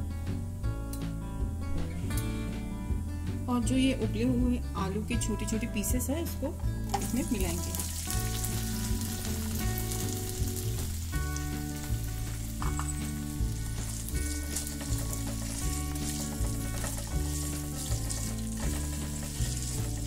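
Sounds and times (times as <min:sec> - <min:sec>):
background music with bass line: 0:00.0 - 0:20.0
food sizzling in hot oil: 0:06.7 - 0:20.0
spatula stirring in pan: 0:10.8 - 0:20.0.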